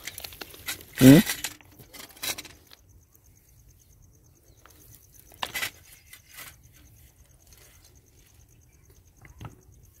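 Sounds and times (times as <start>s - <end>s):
scraping rustles: 0.0s - 2.8s, 5.0s - 8.6s.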